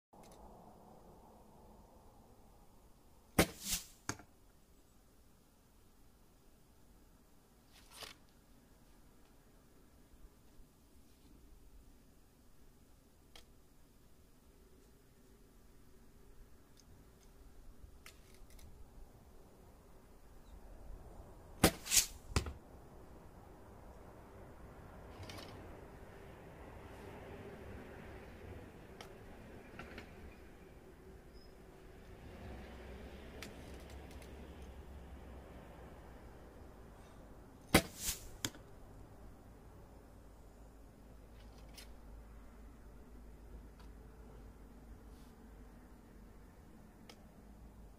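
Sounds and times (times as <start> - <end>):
arrow hissing in flight: 3.4 - 4.0, 21.6 - 22.3, 37.7 - 38.4
arrow striking target: 3.4 - 4.2, 21.6 - 22.6, 37.7 - 38.6
arrow drawn from quiver clicks: 21.6 - 22.2.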